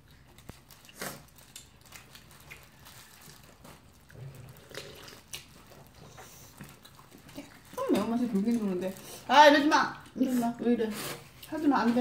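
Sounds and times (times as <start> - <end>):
small clicks and crackles: 0.0 - 9.1
chewing fried chicken: 0.0 - 12.0
plastic gloves crinkling: 0.0 - 12.0.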